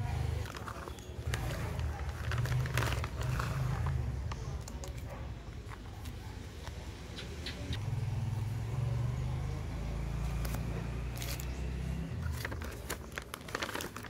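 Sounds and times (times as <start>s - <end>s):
sharp clicks and crackles: 0.4s - 6.8s.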